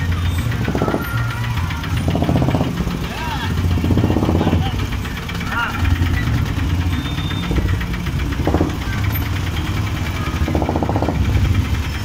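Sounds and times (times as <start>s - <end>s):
engine running with low rumble: 0.0s - 12.0s.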